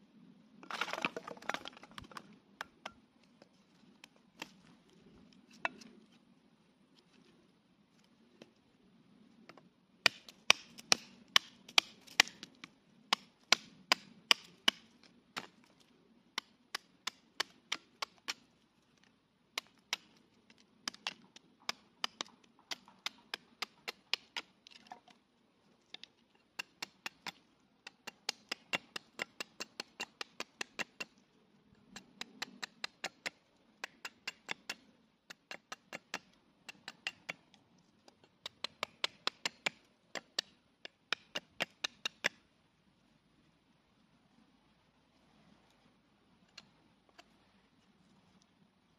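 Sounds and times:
tomahawk chopping wood: 10.0 - 12.5, 13.1 - 15.6, 16.4 - 18.4, 19.6 - 20.1, 20.8 - 24.8, 25.9 - 31.1, 32.0 - 37.4, 38.4 - 42.4.

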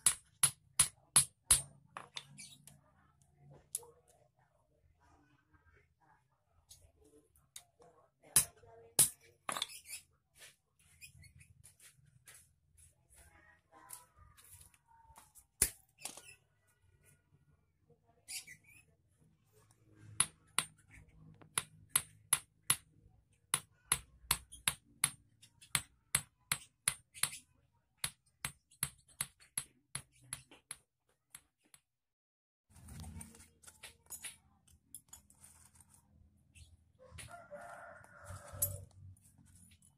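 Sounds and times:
hammer tapping wire on anvil: 0.0 - 2.4, 20.1 - 27.4.

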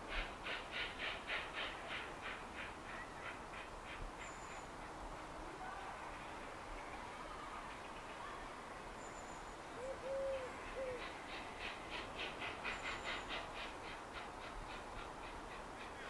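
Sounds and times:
bird hooting call: 9.8 - 11.2.

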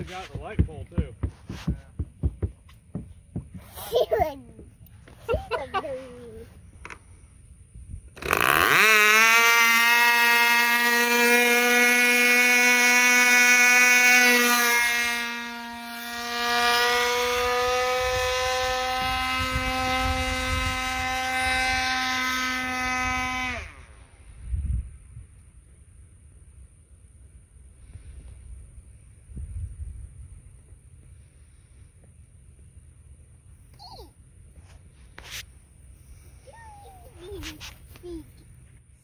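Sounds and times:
model airplane engine buzzing: 4.9 - 24.4.

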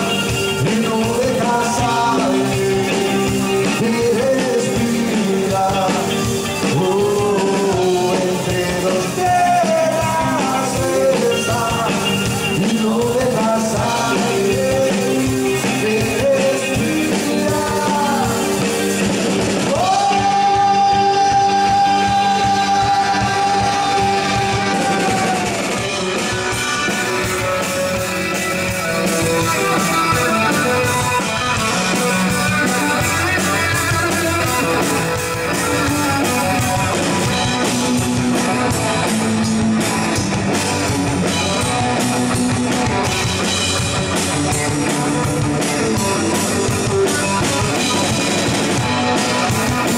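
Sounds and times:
person singing: 0.0 - 18.9, 19.7 - 25.8
bass guitar: 0.0 - 49.9
drum kit: 0.0 - 49.9
electric guitar: 0.0 - 49.9.

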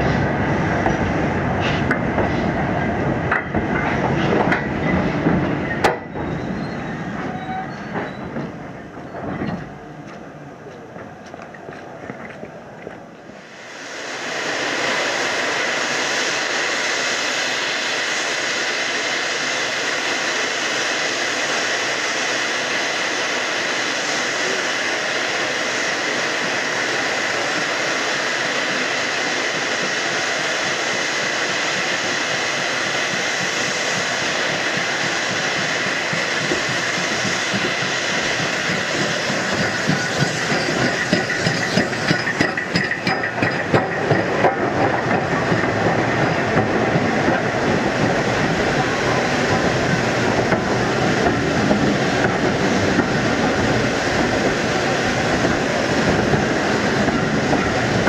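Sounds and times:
steam train hissing: 0.0 - 10.1, 11.6 - 58.0
wheels clattering over rail joints: 3.3 - 13.1, 34.7 - 58.0.

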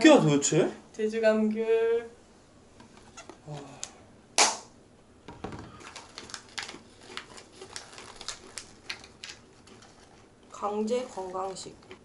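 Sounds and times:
plastic cup snapping off: 3.8 - 4.7
plastic snack packet crinkling: 5.7 - 12.0.

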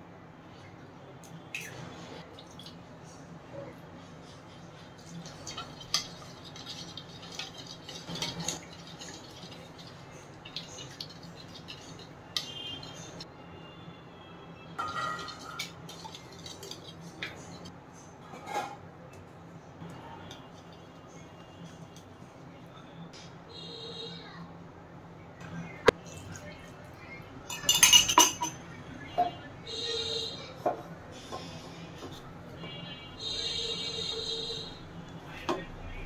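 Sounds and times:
whisk scraping ceramic bowl: 4.2 - 13.2.

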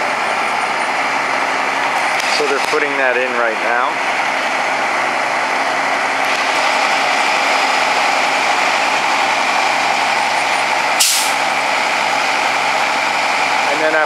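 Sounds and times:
truck engine idling: 0.0 - 14.0.

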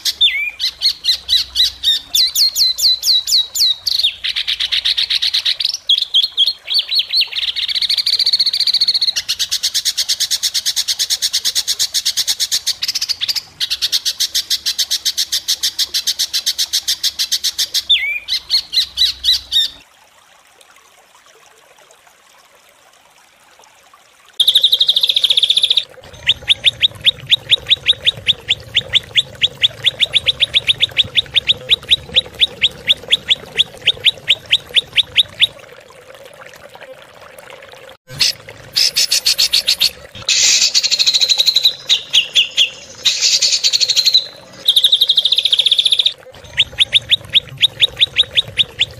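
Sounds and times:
sharp repeated bird notes: 24.4 - 35.5, 38.1 - 48.9.

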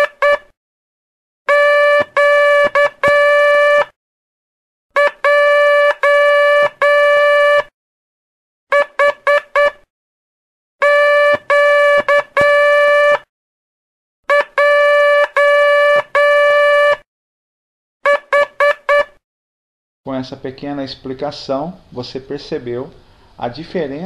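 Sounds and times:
morse code tones: 0.0 - 0.5, 1.5 - 3.9, 5.0 - 7.7, 8.7 - 9.8, 10.8 - 13.3, 14.3 - 17.0, 18.0 - 19.2.

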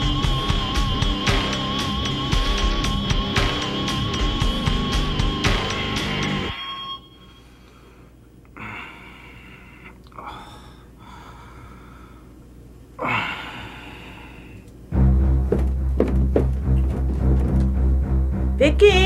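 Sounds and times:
loud music: 0.0 - 6.5, 15.0 - 19.0
man breathing heavily: 7.4 - 14.7.

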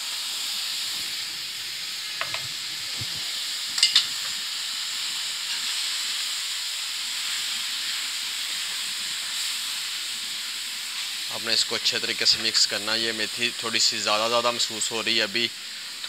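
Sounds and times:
leaves sizzling in a pan: 0.0 - 16.0
metal spatula clinking on pan: 3.8 - 4.1.

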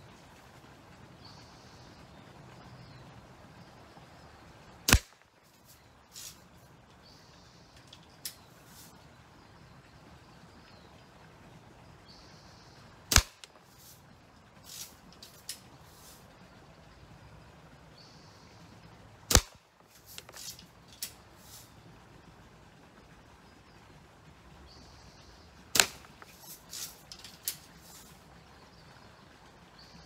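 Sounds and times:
bb gun shots: 4.9 - 5.2, 13.1 - 13.5, 19.3 - 19.6, 25.7 - 26.3.

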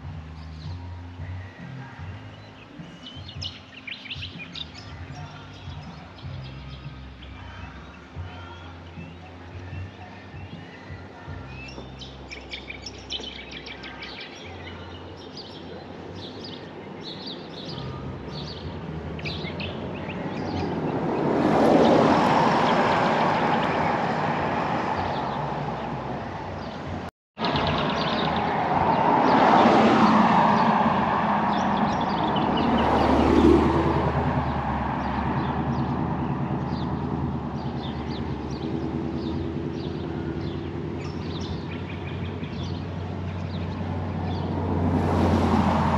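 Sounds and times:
small birds chirping: 0.0 - 30.8, 31.4 - 45.9
broad rushing noise: 15.5 - 45.9.

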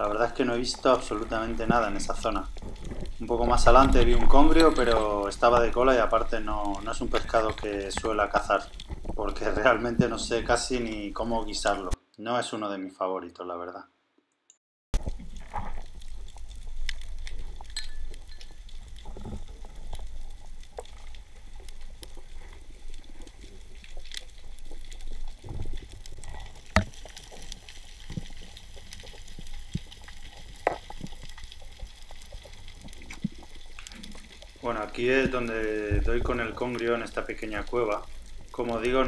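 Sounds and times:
sharp underwater clicks and crackles: 0.0 - 12.0, 15.0 - 39.0.

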